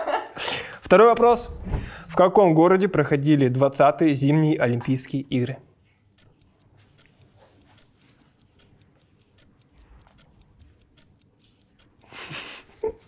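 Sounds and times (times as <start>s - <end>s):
rapid clock ticking: 6.1s - 13.0s.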